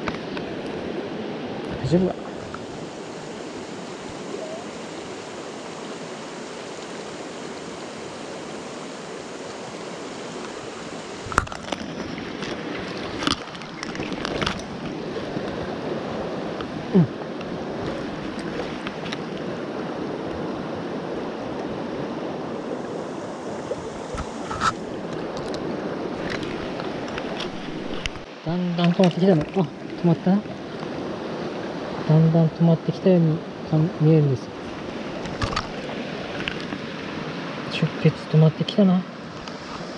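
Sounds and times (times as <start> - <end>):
stream running over rocks: 0.0 - 39.9
knocks and small splashes: 11.2 - 19.6, 23.7 - 32.0, 34.6 - 37.5.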